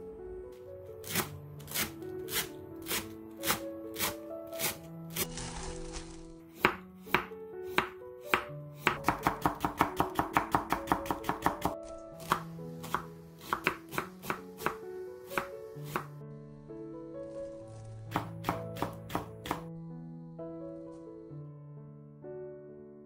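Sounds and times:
knife chopping on wooden board: 1.0s - 5.3s, 6.5s - 14.8s, 15.4s - 16.1s, 18.1s - 19.6s
chives poured into bowl: 5.2s - 6.4s.

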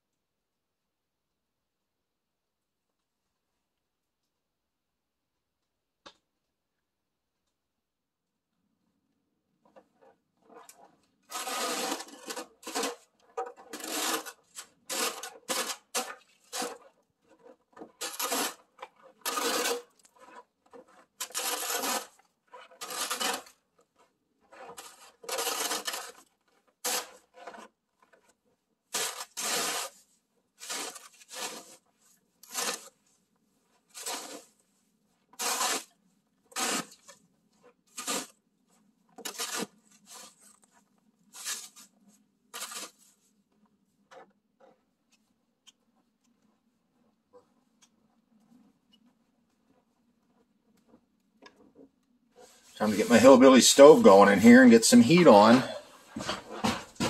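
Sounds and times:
snow shovel scraping: 11.3s - 18.6s, 19.2s - 23.6s, 24.5s - 26.2s, 26.8s - 27.7s, 28.9s - 30.0s, 30.6s - 31.8s, 32.4s - 33.0s, 33.9s - 34.6s, 35.4s - 35.9s, 36.5s - 37.2s, 37.9s - 38.4s, 39.2s - 40.5s, 41.3s - 41.9s, 42.5s - 43.1s, 52.4s - 57.0s.

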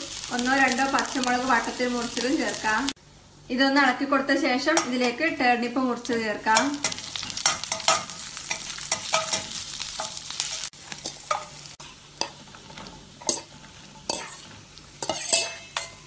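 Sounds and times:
food sizzling in hot oil: 0.0s - 3.0s, 5.9s - 16.0s
spatula scraping metal pan: 12.2s - 16.0s.

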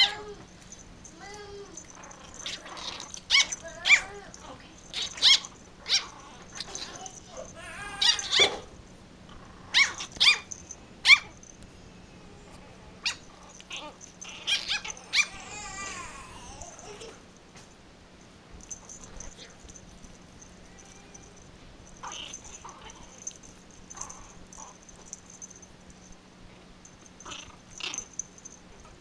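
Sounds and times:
growly yapping: 1.3s - 8.6s, 9.3s - 10.5s, 22.0s - 23.3s, 23.9s - 24.8s, 27.2s - 28.9s
puppies yipping and barking: 1.8s - 8.6s, 9.7s - 11.4s, 13.0s - 15.9s.

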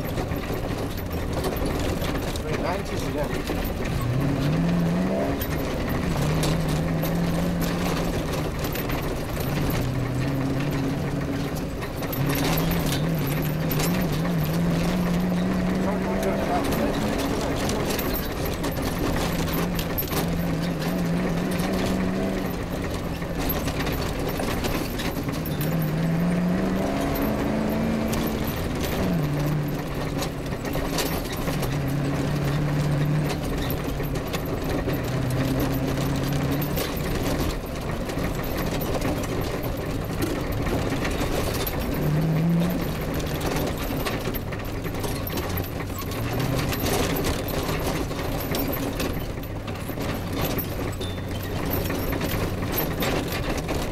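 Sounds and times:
rally car engine accelerating: 0.0s - 53.9s
vehicle rattling on rough track: 0.0s - 53.9s.

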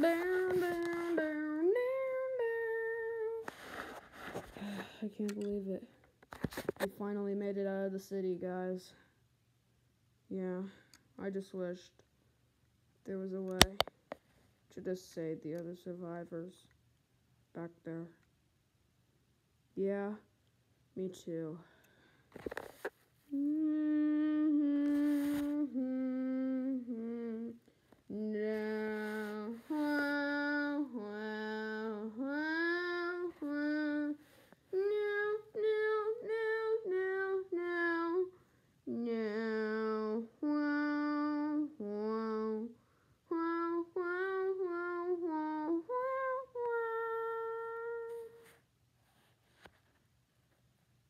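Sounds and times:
child singing wordless tune: 0.0s - 3.5s, 23.3s - 48.6s.

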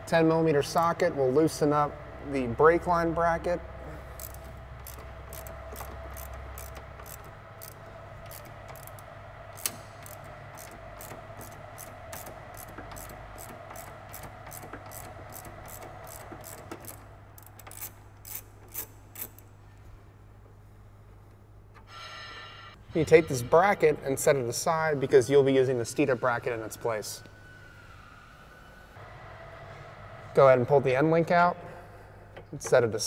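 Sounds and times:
ratchet wrench clicking: 4.2s - 9.0s, 9.6s - 19.5s.

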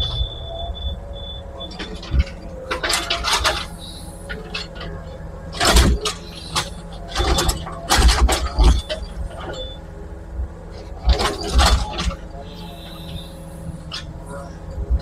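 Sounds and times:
excavator engine running: 0.0s - 15.0s.

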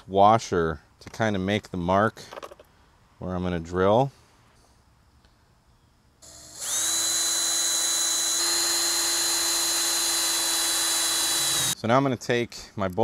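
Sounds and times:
cordless drill high whine: 6.2s - 11.8s.

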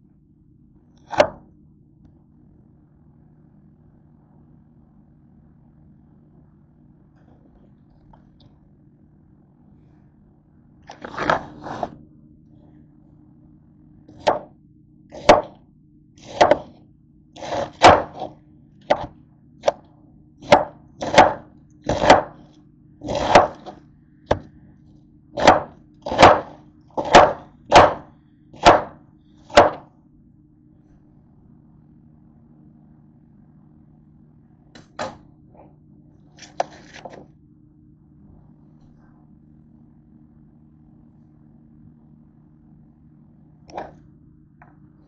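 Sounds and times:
knife chopping cabbage on board: 15.2s - 15.6s, 16.2s - 16.7s, 17.4s - 18.3s, 18.9s - 19.8s, 20.4s - 22.4s, 23.0s - 24.4s, 25.4s - 29.8s.

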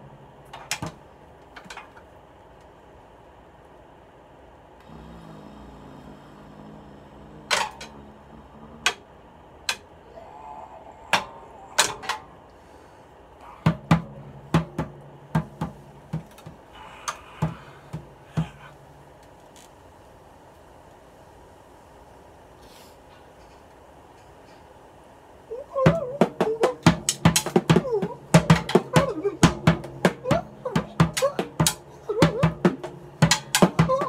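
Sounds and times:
drum and cymbal hits: 13.6s - 19.2s, 25.9s - 34.0s.

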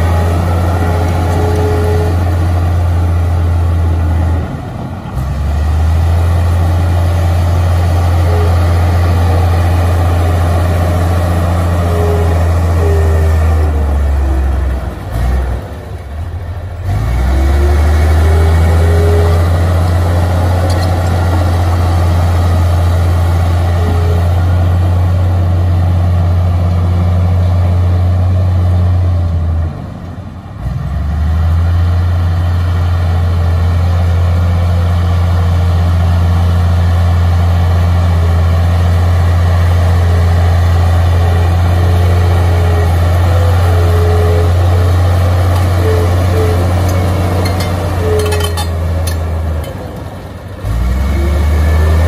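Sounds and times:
bulldozer diesel engine: 0.0s - 52.0s
short squeaks: 42.7s - 50.0s.

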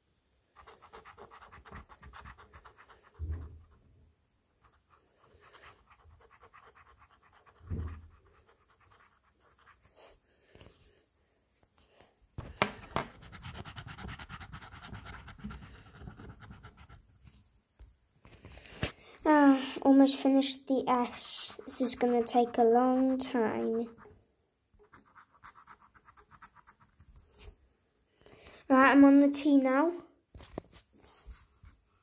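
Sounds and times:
marker scratching on paper: 0.6s - 3.8s, 4.6s - 10.2s, 12.4s - 17.1s, 21.0s - 24.2s, 24.8s - 27.5s.

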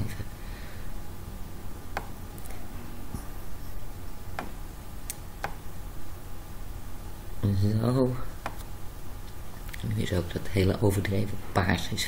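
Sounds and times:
steady low hum: 0.0s - 12.0s
computer mouse clicks: 4.3s - 5.6s.

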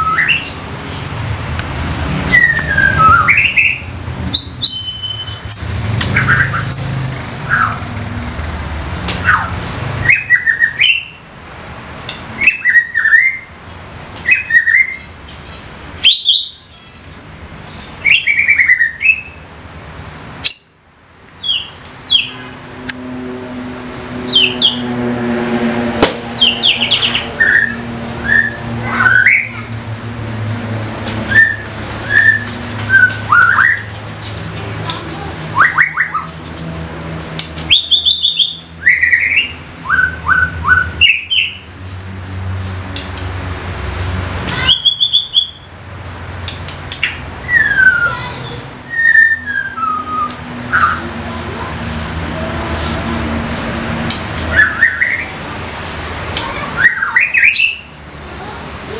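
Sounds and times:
songbird singing whistles: 0.0s - 0.6s, 2.3s - 5.5s, 9.2s - 11.2s, 12.4s - 13.5s, 14.2s - 15.1s, 16.0s - 17.0s, 18.0s - 19.4s, 20.4s - 22.4s, 31.3s - 33.9s, 35.6s - 36.3s, 37.7s - 41.6s, 44.5s - 45.7s, 47.4s - 51.1s, 54.5s - 55.3s, 56.8s - 57.9s.

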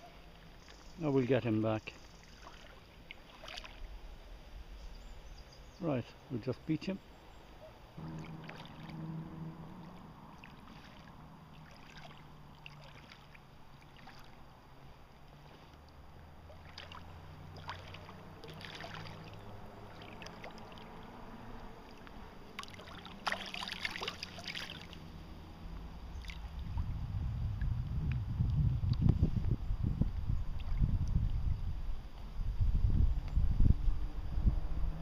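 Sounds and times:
water splashing and sloshing: 0.0s - 4.8s, 7.2s - 29.2s, 30.4s - 31.6s.

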